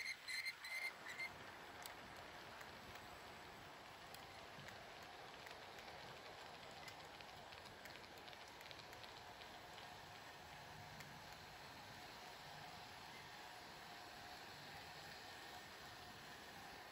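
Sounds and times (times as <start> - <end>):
model train coaches rolling: 0.0 - 16.9
wheels clicking: 0.2 - 13.5.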